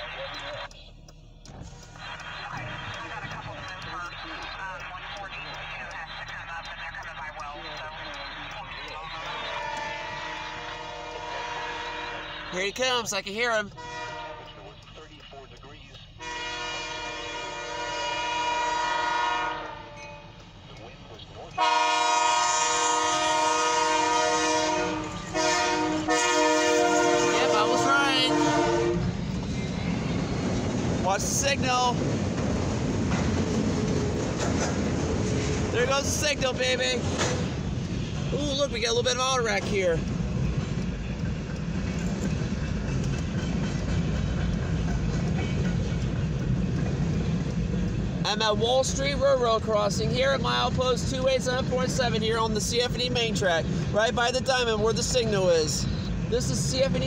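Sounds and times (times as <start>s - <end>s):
train wheels rumbling on rail: 1.4s - 57.0s
locomotive air horn blasts: 9.2s - 12.5s, 13.8s - 14.8s, 16.2s - 20.0s, 21.6s - 29.2s.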